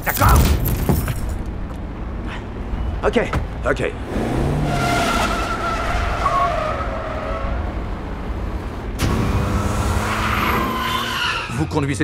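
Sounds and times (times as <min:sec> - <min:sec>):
road noise: 0:00.0 - 0:12.0
car engine accelerating: 0:03.9 - 0:11.4
tyres squealing: 0:04.3 - 0:07.8, 0:09.9 - 0:12.0.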